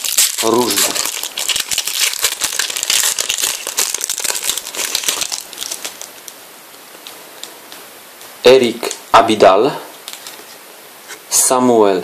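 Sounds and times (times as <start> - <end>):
foil wrapper crinkling: 0.0 - 6.4.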